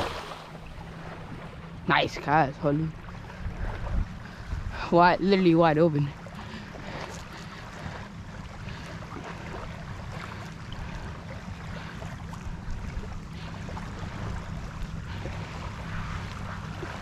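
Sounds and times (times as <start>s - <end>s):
wind on microphone: 0.0s - 5.8s
water lapping against boat: 0.0s - 17.0s.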